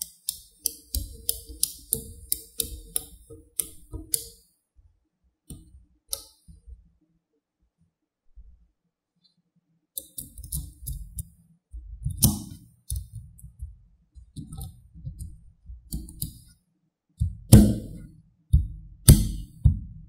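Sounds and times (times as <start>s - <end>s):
magnetic balls clicking together: 0.0s - 4.4s.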